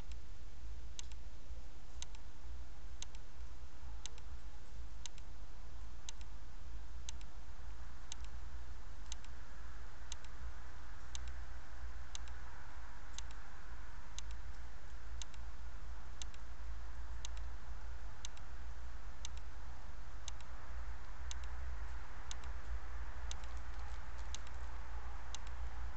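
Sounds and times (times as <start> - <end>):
low electrical hum and hiss: 0.0 - 25.9
sharp double ticks: 10.1 - 10.4, 17.2 - 17.5, 20.2 - 20.6, 21.2 - 21.6, 22.2 - 24.7.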